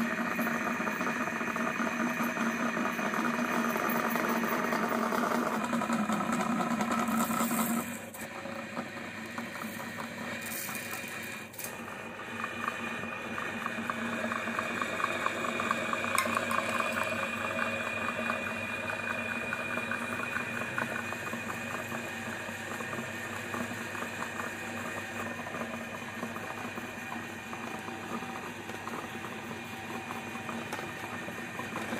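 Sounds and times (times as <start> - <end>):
jars crunching in grinder: 0.0 - 20.3
meat grinder motor humming: 0.0 - 31.9.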